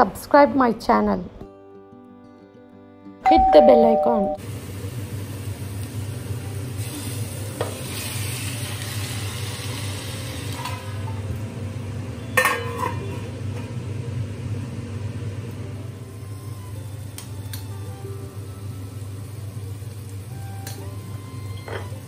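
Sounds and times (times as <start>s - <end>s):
chicken sizzling in a pot: 4.4s - 22.0s.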